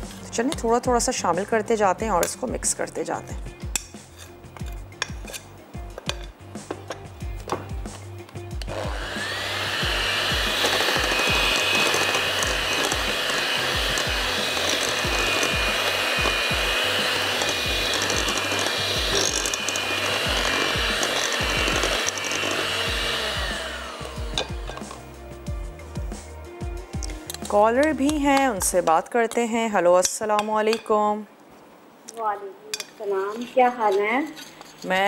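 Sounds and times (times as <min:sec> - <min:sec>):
electric mixer motor whine: 0:08.6 - 0:25.0.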